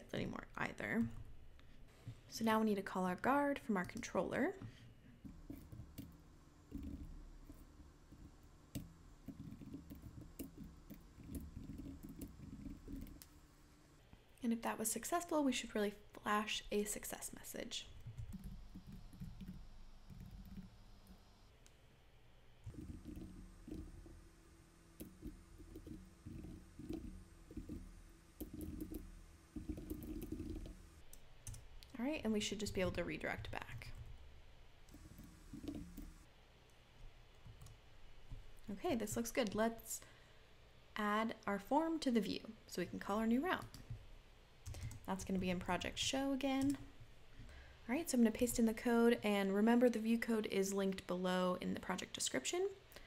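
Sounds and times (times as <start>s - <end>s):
computer keyboard typing: 18.0s - 21.2s, 25.0s - 30.9s.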